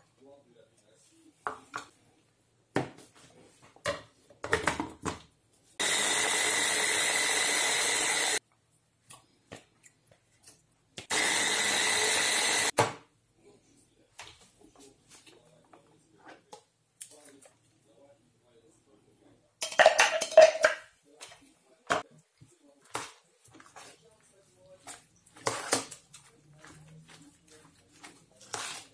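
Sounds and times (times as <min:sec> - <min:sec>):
electric hand blender whining: 0:05.8 - 0:08.4, 0:11.1 - 0:12.7.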